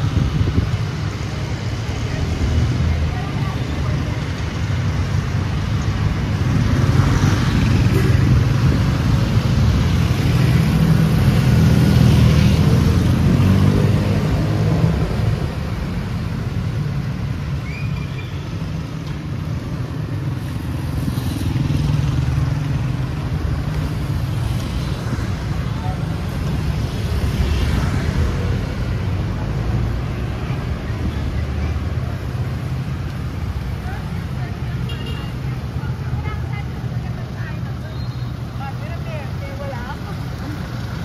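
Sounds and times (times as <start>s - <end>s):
vehicles passing: 0.0s - 41.0s.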